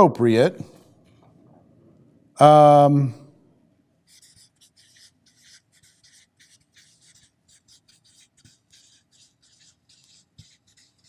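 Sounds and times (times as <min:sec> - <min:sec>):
marker scratching on paper: 0:04.0 - 0:11.0.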